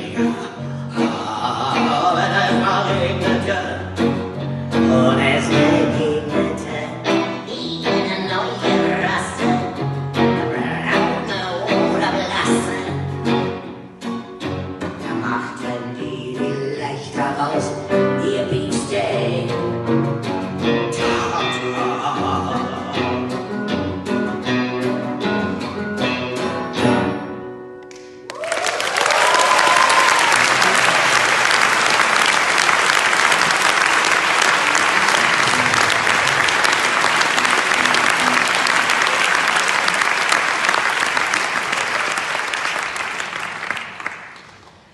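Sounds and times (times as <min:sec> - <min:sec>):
guitars strumming chords: 0:00.0 - 0:28.2, 0:33.2 - 0:40.0
audience applauding: 0:27.9 - 0:44.9
person cheering: 0:28.3 - 0:31.9.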